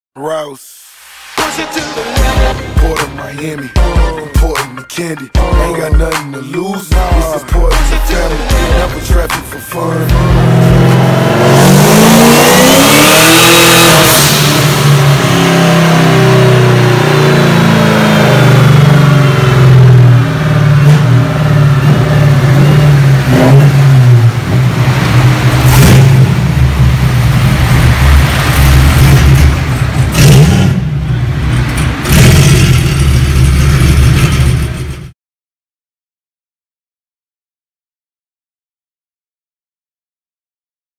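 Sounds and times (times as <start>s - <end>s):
car engine revving with whine: 9.8s - 35.1s
exhaust cracks: 24.2s - 35.1s.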